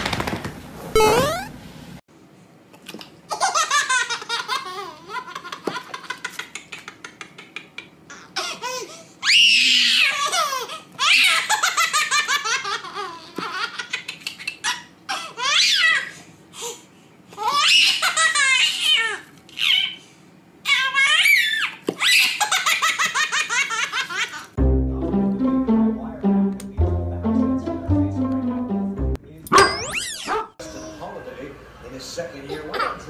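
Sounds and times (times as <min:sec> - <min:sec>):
baby laughing: 0:03.3 - 0:08.8.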